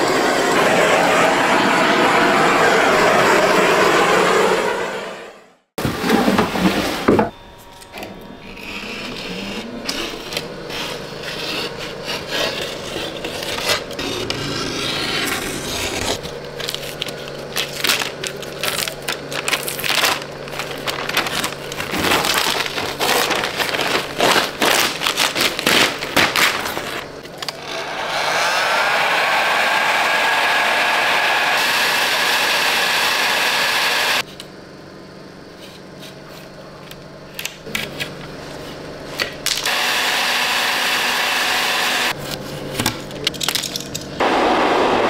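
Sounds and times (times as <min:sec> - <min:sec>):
plastic sheeting peeled crinkling: 0:16.2 - 0:27.2.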